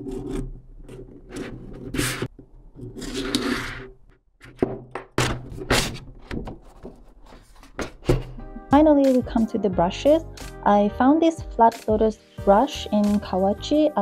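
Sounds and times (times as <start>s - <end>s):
paper rustling scrape: 0.0s - 4.0s, 5.4s - 8.4s
paper crackling and tapping: 5.9s - 8.4s.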